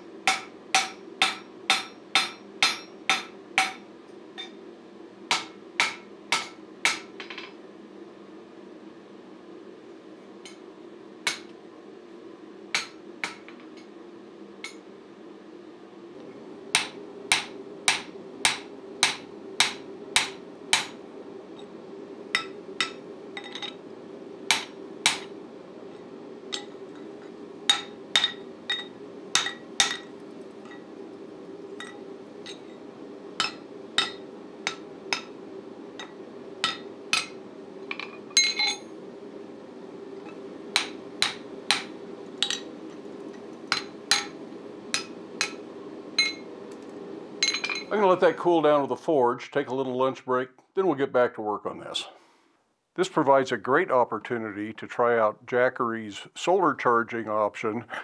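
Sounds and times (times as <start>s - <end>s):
forge blower hum: 0.0s - 51.0s, 53.0s - 58.0s
hammer striking steel on anvil: 0.2s - 3.8s, 5.3s - 7.5s, 11.3s - 11.5s, 12.8s - 13.6s, 16.8s - 21.0s, 24.5s - 25.3s, 27.7s - 30.8s, 33.4s - 35.4s, 36.0s - 38.8s, 40.7s - 42.7s, 43.7s - 45.6s, 46.2s - 46.4s.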